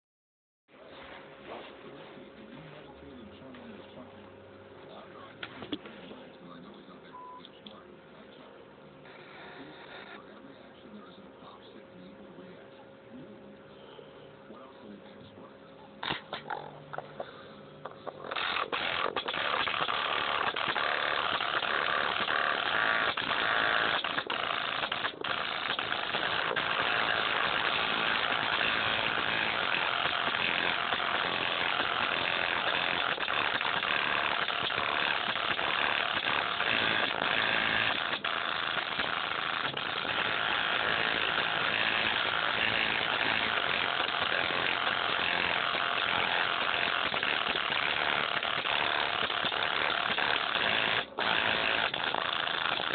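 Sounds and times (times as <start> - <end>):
harsh distorted headphone noise: 5.3 - 7.3, 9.0 - 10.4, 16.0 - 52.9.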